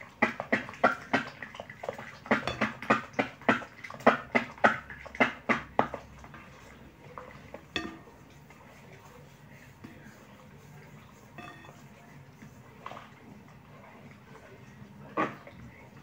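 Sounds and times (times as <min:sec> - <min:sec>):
spoon knocking on glass bowl: 0:02.4 - 0:03.0, 0:07.7 - 0:08.0, 0:11.4 - 0:11.7.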